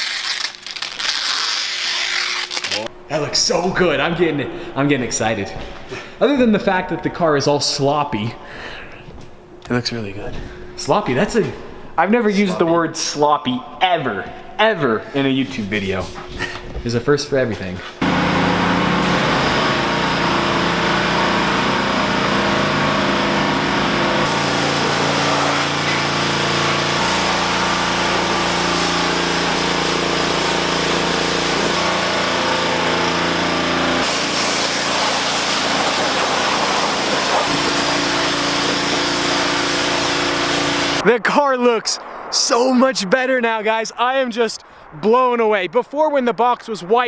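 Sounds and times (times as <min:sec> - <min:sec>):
pump humming: 0:18.0 - 0:41.0
pressure washer spray hissing: 0:24.2 - 0:41.0.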